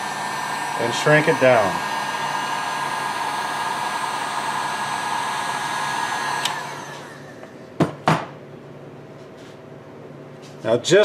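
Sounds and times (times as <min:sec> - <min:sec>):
heat gun blowing: 0:00.0 - 0:07.5
fan spinning down: 0:00.0 - 0:07.8.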